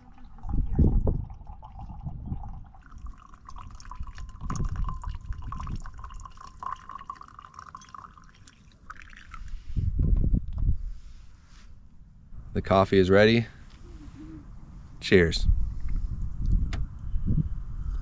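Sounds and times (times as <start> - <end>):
coffee streaming into mug: 0.0 - 9.5
water pouring into coffee dripper: 0.0 - 9.5.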